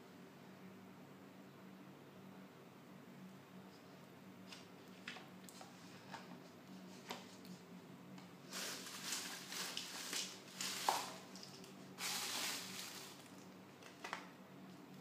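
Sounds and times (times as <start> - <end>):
rustling of craft materials: 8.4 - 15.0.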